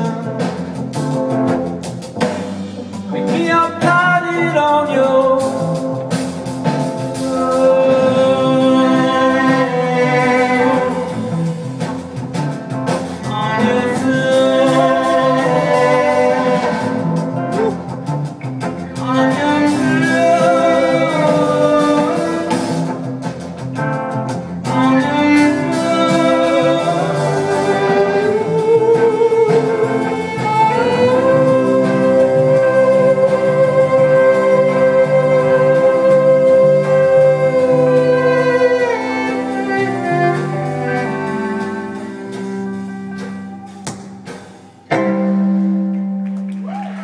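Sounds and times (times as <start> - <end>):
live band playing: 0.0 - 47.0
violin melody: 7.1 - 12.4, 13.2 - 18.0, 18.7 - 23.5, 24.6 - 44.2.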